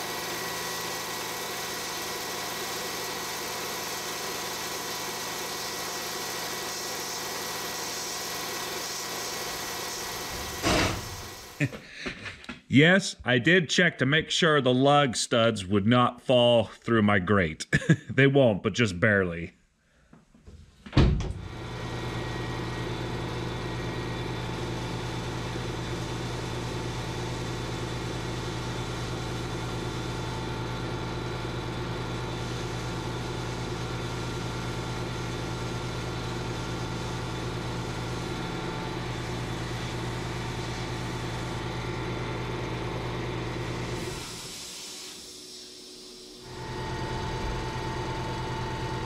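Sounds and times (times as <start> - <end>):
electric motor hum: 0.0 - 11.7, 21.4 - 49.0
hiss of sandblasting: 4.8 - 11.7, 43.8 - 46.6.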